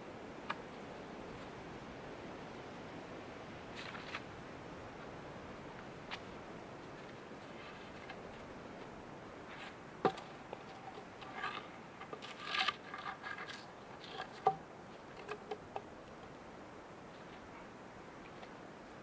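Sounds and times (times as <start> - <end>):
scraping and crunching: 9.4 - 15.6.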